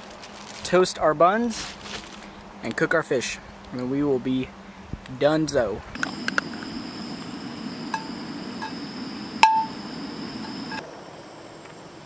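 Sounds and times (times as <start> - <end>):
steady hiss: 5.1 - 12.0.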